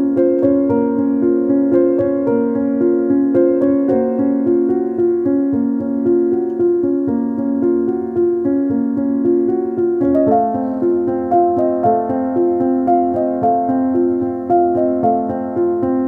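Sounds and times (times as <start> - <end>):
sustained keyboard notes: 0.0 - 16.0.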